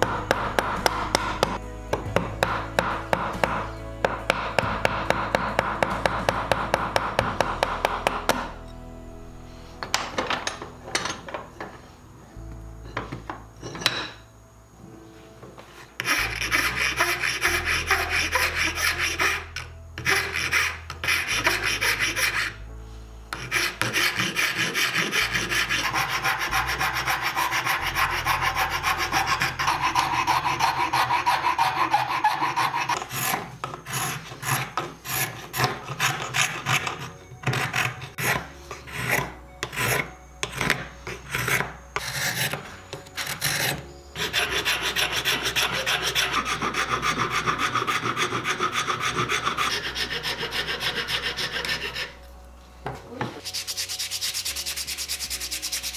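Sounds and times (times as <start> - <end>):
hand file rasping on wood: 16.0 - 22.6, 23.3 - 42.6, 43.2 - 52.2.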